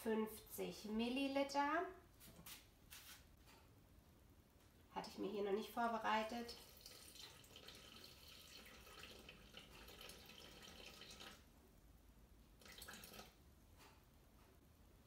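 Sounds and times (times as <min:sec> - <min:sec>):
water trickling into steel bowl: 0:06.5 - 0:11.4, 0:12.6 - 0:13.4.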